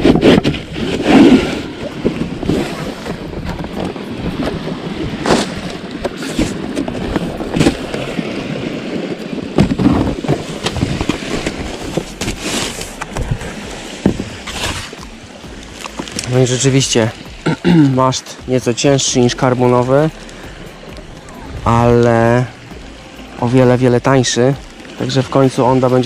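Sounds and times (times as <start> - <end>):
cardboard box scraping and knocking: 5.2 - 8.1, 9.6 - 15.1.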